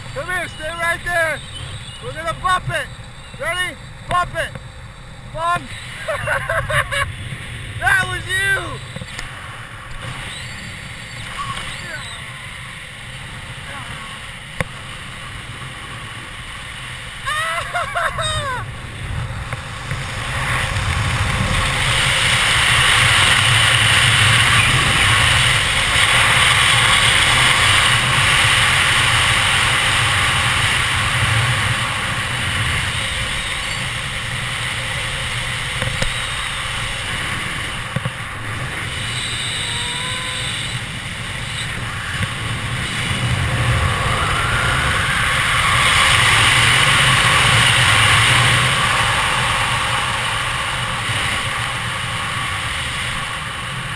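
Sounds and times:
wind rushing over microphone: 5.2 - 53.9.

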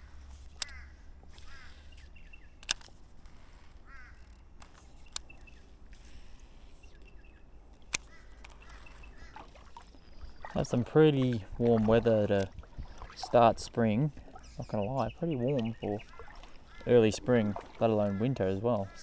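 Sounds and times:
birds chirping: 0.0 - 2.8, 3.4 - 19.0
sharp clicks: 0.4 - 9.1
harsh bird calls: 0.6 - 2.6, 6.7 - 11.9, 12.7 - 19.0.

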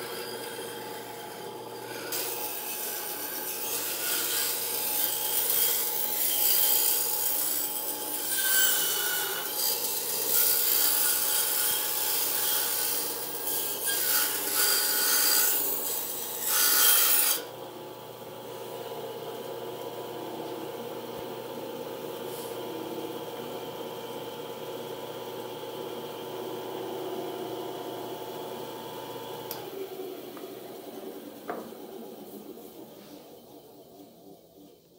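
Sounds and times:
band saw cutting wood: 0.0 - 17.6.

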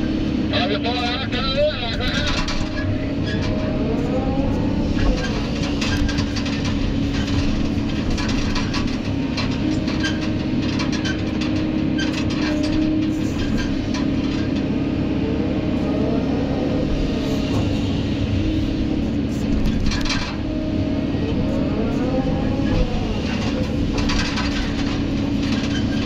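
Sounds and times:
excavator engine and hydraulics: 0.0 - 26.0.

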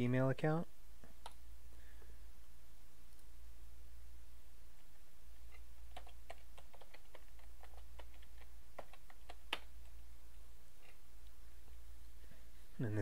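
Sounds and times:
computer keyboard key clicks: 5.9 - 9.7.

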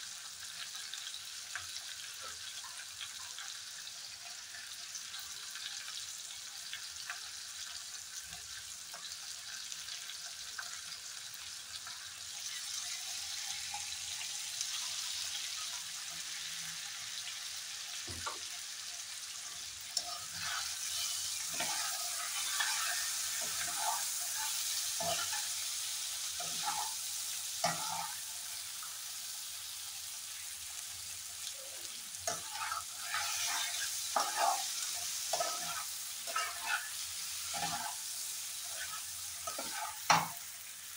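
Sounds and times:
curry sizzling in a frying pan: 0.0 - 40.9
spatula scraping a pan: 20.0 - 25.7, 26.3 - 27.0, 27.6 - 28.3, 31.8 - 40.5.

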